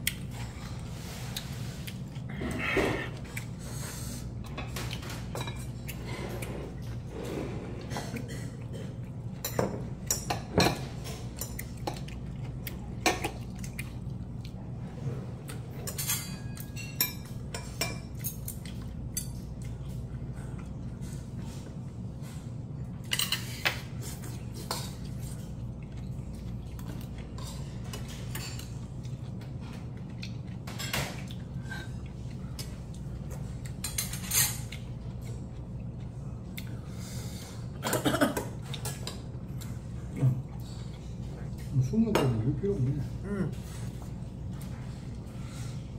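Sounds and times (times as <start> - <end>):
steady low hum: 0.0 - 45.9
utensils clinking on metal bowl: 15.8 - 19.5, 23.0 - 23.7, 33.8 - 34.8.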